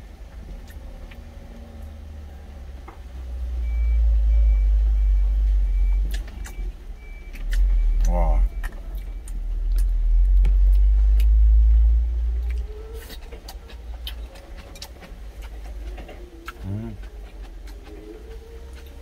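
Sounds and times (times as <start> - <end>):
mouth-closed chewing: 0.4 - 1.8, 5.9 - 19.0.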